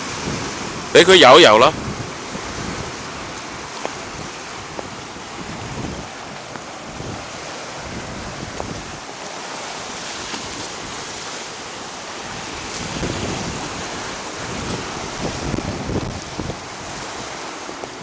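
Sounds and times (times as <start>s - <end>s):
ocean surf breaking on rocks: 0.0s - 18.0s
wind buffeting microphone: 0.0s - 18.0s.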